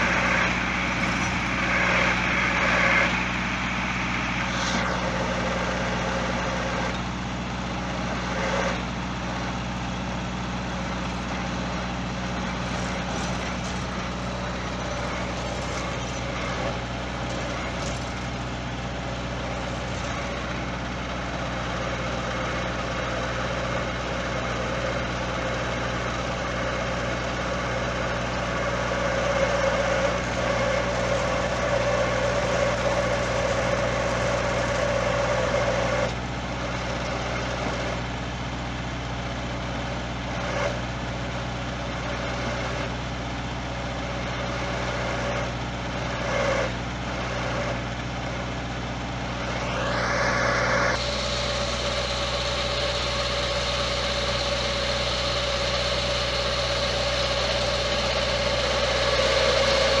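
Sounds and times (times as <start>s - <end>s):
hydraulic rising whine: 0.0s - 7.1s, 10.7s - 22.8s, 27.8s - 36.2s, 49.2s - 60.0s
tractor engine running: 0.0s - 60.0s.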